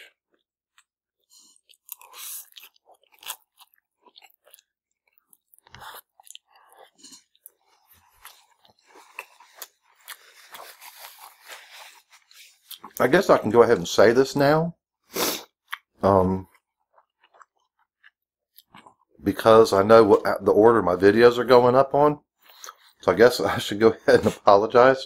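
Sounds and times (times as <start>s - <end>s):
people chewing food: 0.0s - 13.5s, 15.3s - 20.3s, 22.4s - 23.0s.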